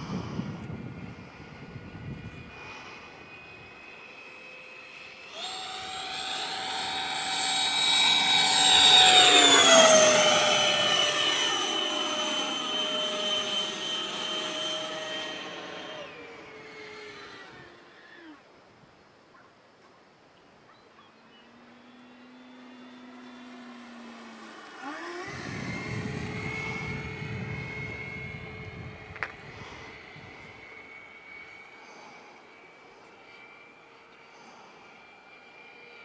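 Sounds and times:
model jet fan whining: 0:00.0 - 0:19.3, 0:20.2 - 0:36.0.

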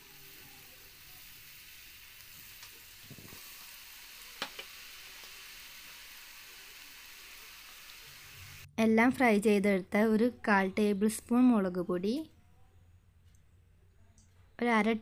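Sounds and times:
dough deep-frying in hot oil: 0:00.0 - 0:08.7.

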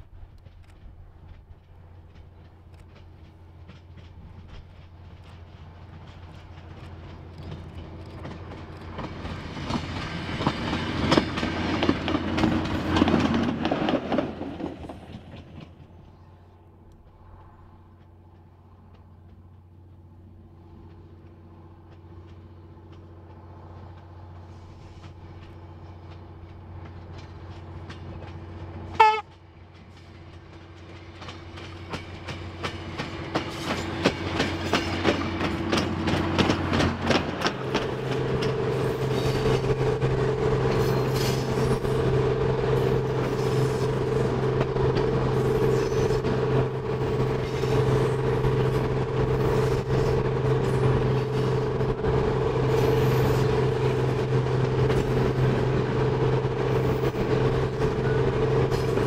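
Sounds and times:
rail motor engine drone: 0:00.0 - 0:59.0
train wheels clattering on rails: 0:00.0 - 0:59.0
train horn blast: 0:28.9 - 0:29.4.

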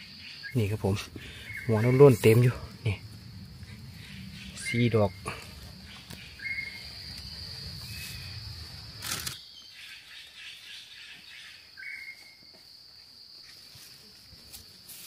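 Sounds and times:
high-pitched insect drone: 0:00.0 - 0:09.6
low rumbling handling noise: 0:00.8 - 0:09.4
sharp rustle: 0:07.8 - 0:09.4.

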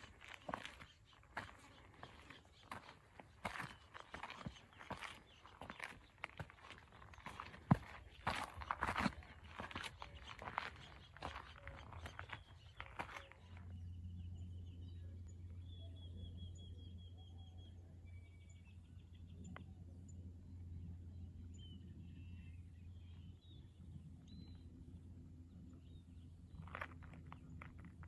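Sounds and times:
footstep crunching: 0:00.0 - 0:13.7, 0:26.6 - 0:28.0
birds chirping: 0:00.0 - 0:19.8, 0:25.5 - 0:28.0
faint low rumble: 0:00.0 - 0:28.0.

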